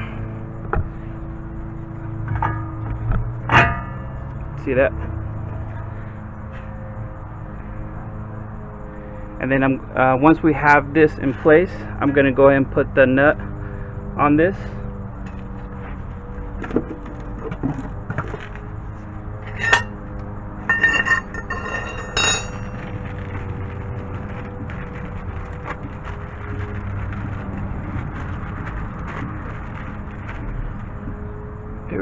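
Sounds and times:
small metal parts clinking: 20.6 - 23.6.

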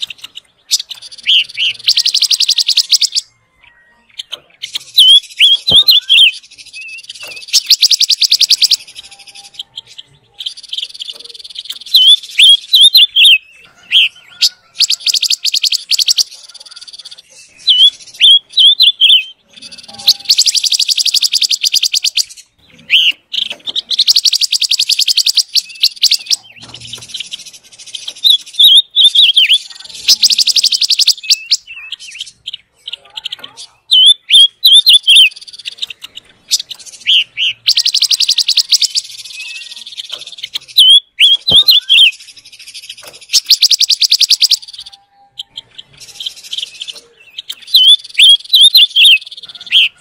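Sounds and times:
bird whistled warbling song: 0.0 - 50.0
bird buzzy chattering rattles: 33.1 - 44.9.

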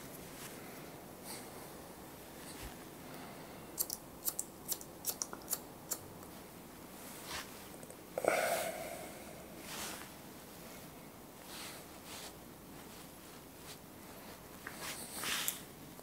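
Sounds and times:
scissors snipping hair: 3.8 - 6.0.

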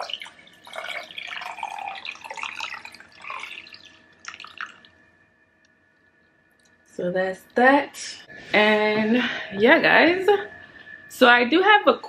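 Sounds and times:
water pouring into glass vase: 0.0 - 5.1.

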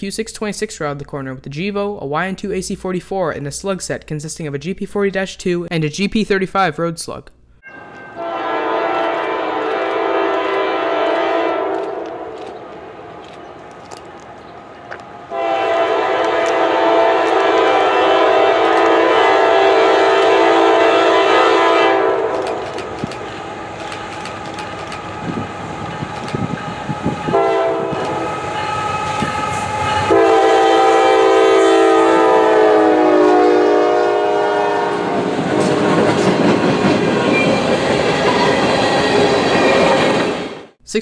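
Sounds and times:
locomotive air horn: 7.7 - 12.4, 15.3 - 22.6, 25.1 - 36.4.

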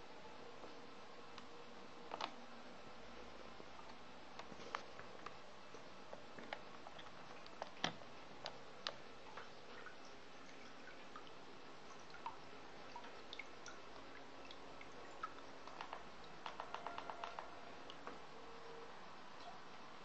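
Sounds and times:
pump humming: 0.0 - 20.0
water drips and plinks: 3.7 - 18.3, 19.3 - 20.0.

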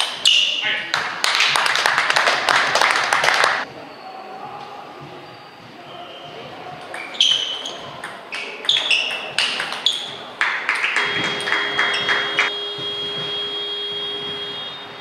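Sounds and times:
steady high ringing tone: 11.0 - 15.0.

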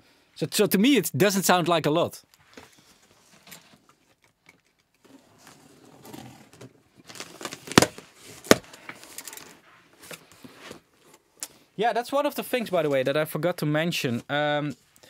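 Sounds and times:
cardboard and tape rustling: 2.4 - 11.2.

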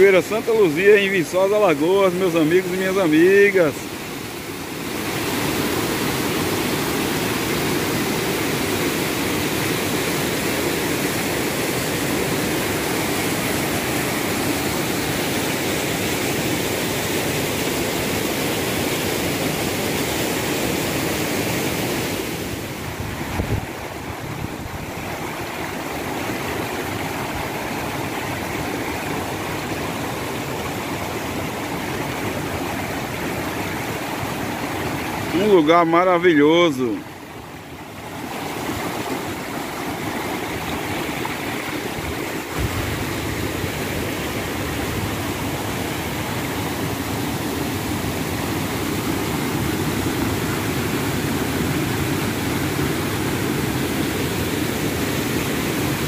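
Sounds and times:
waterfall rushing over rocks: 0.0 - 56.0.

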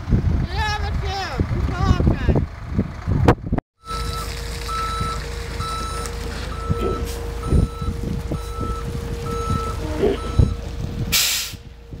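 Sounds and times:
truck engine rumble: 0.0 - 12.0
truck backup alarm beeping: 3.8 - 11.7.

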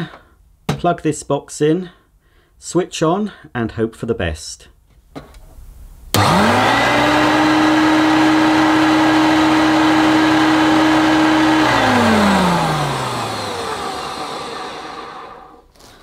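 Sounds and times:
vacuum cleaner motor whine: 6.2 - 15.6.

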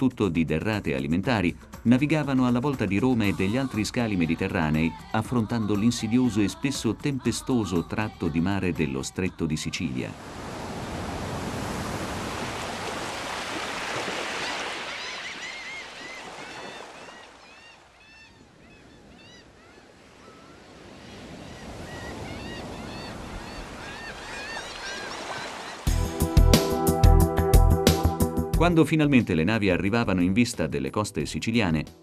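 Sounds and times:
faint water noise: 10.0 - 25.9
waves breaking: 10.0 - 25.9
short high bird calls: 14.4 - 25.9.

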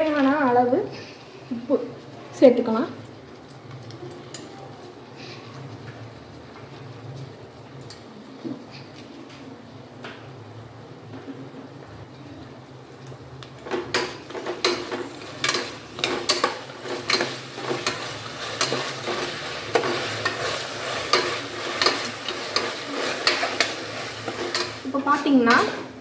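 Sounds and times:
utensil scraping and knocking pan: 13.8 - 25.9
onions sizzling in oil: 14.0 - 25.8.

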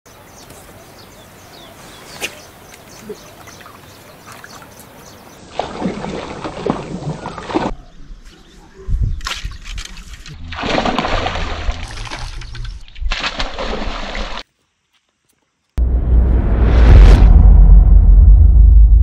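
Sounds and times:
small waves lapping: 2.2 - 7.7.

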